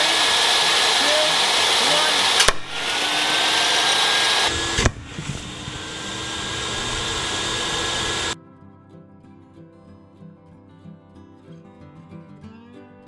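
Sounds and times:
table saw whining: 0.0s - 8.4s
dowel launched with sharp crack: 2.3s - 2.9s.

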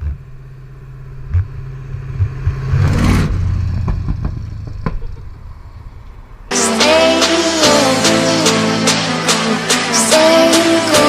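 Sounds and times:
vehicle engine running: 0.0s - 8.3s
passing vehicle rush: 0.0s - 11.0s.

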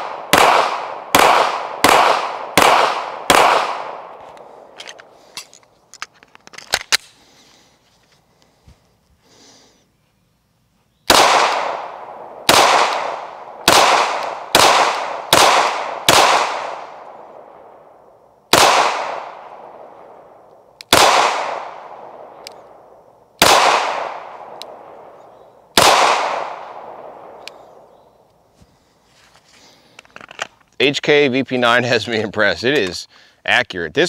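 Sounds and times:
pistol shots echoing: 0.0s - 4.7s, 11.1s - 27.9s.

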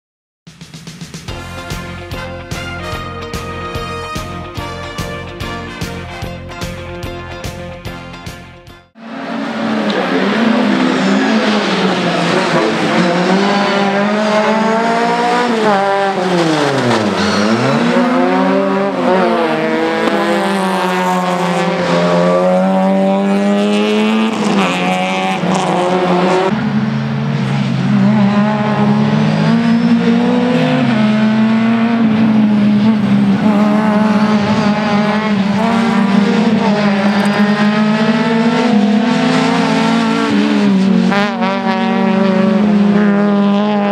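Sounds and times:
race car engine revving: 9.0s - 43.9s.

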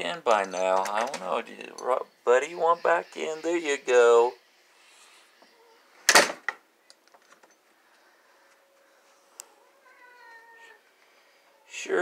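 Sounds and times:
cat meowing: 9.5s - 10.8s.

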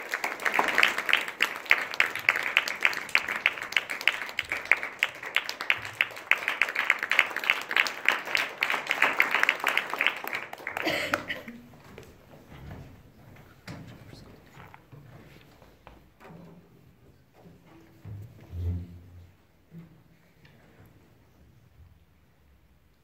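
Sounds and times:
audience applauding: 0.0s - 11.8s.

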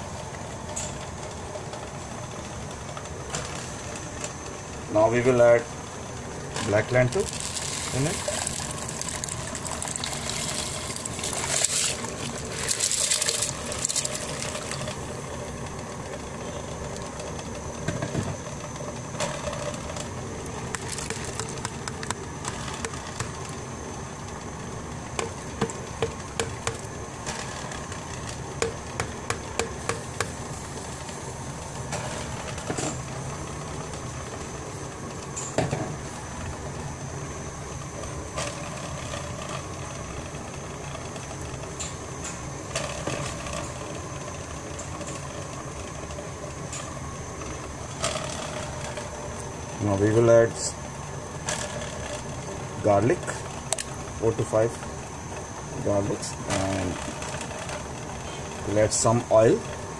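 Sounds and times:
steady background noise: 0.0s - 59.9s
lentils pouring into water: 7.0s - 15.1s, 20.8s - 21.6s.

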